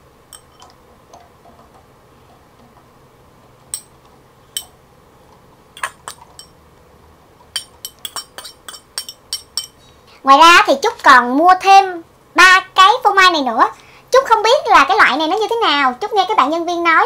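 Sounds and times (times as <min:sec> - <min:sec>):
fork clinking against glass bowl: 0:05.8 - 0:06.6, 0:07.5 - 0:09.8.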